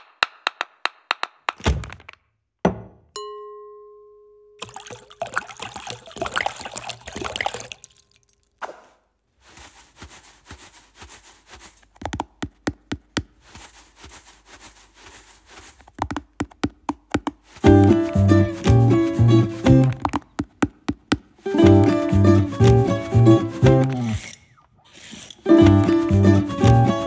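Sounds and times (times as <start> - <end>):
sharp knocks: 0.0 - 3.0
ringing strike on bowl: 3.2 - 4.6
pouring into bowl rustling: 4.6 - 8.5.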